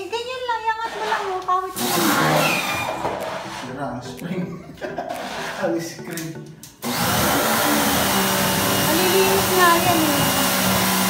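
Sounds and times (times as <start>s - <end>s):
pressure washer motor humming: 1.7s - 3.6s, 6.8s - 11.0s.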